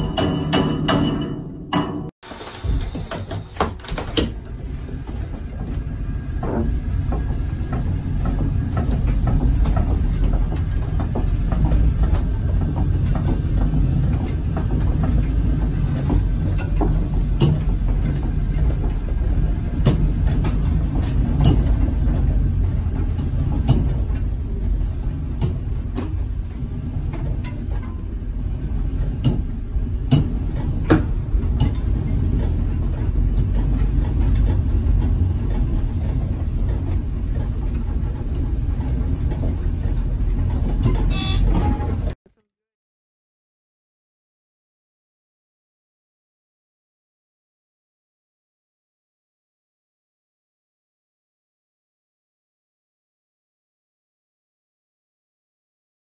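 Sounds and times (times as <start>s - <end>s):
trolley car rumbling on rails: 0.0s - 1.8s, 2.5s - 42.2s
sharp clicks and knocks: 3.0s - 42.2s.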